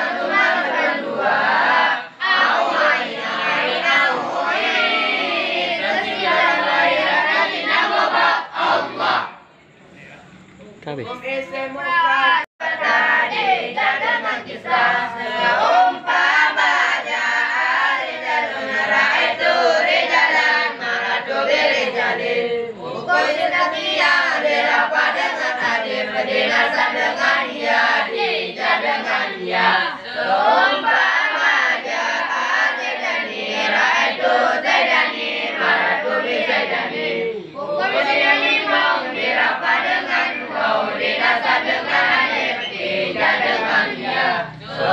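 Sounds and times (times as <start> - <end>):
boys chanting in unison: 0.0 - 9.4, 11.4 - 44.9.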